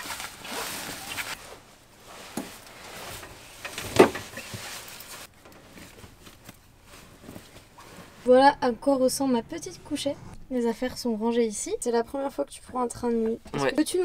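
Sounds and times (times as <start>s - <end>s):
bedding rustling: 0.0s - 10.1s.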